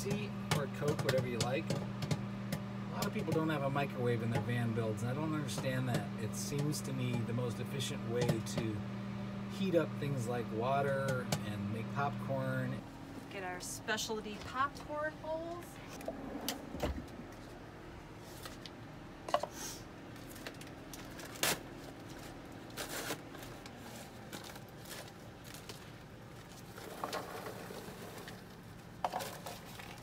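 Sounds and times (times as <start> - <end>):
paper bag crinkling: 20.2 - 28.6.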